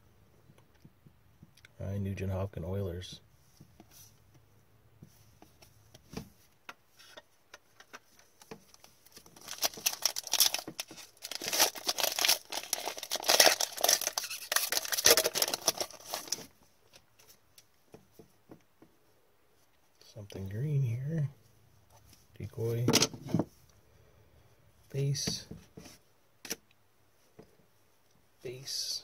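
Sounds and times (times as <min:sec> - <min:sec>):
foil pack crackling: 0:08.8 - 0:16.5.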